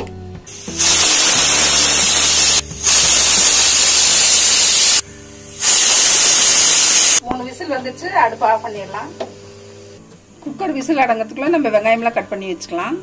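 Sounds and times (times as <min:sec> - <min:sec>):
pressure cooker whistling: 0:00.5 - 0:05.0, 0:05.6 - 0:07.2.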